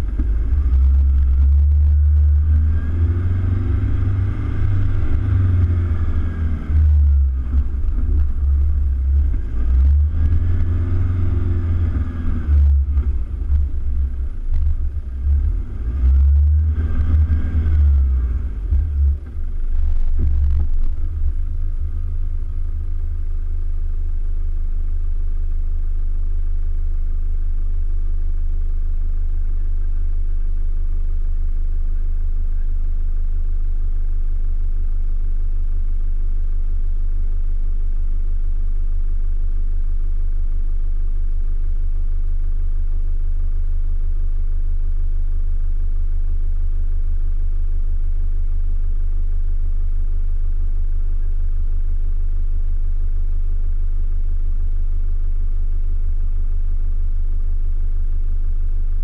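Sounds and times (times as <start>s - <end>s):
pickup engine revving: 0.0s - 24.2s.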